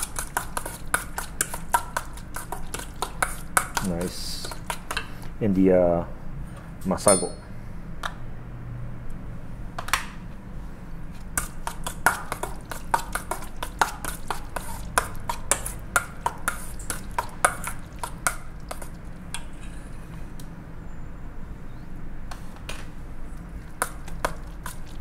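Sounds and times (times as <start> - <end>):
metal spoon clinking in a bowl: 7.0 - 7.5.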